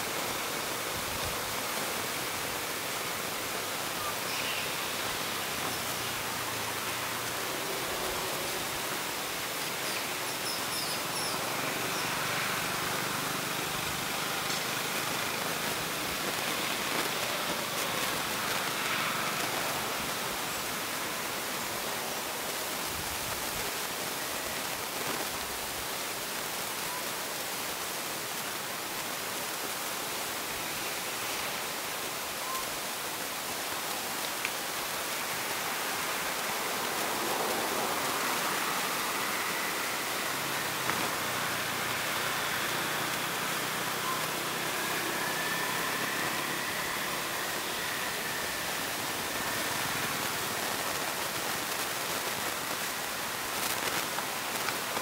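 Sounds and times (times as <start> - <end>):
steady background hiss: 0.0 - 55.0.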